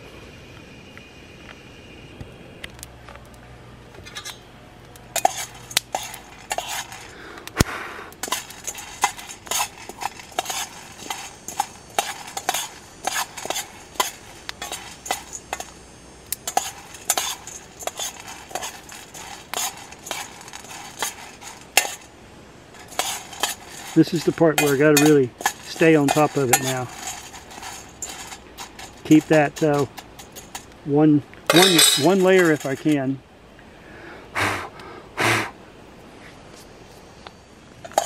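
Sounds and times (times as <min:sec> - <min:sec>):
coffee beans rattling in metal pan: 0:05.1 - 0:07.3, 0:08.2 - 0:30.8, 0:31.5 - 0:33.2.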